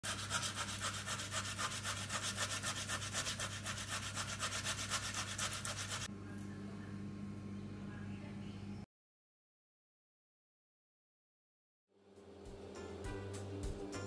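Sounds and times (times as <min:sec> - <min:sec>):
potato grated on metal grater: 0:00.0 - 0:06.1.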